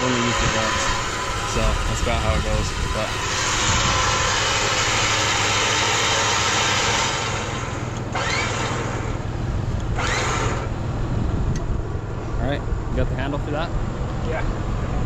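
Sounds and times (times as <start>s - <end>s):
loud rushing hiss: 0.0s - 7.9s
vehicle engine idling: 0.0s - 15.0s.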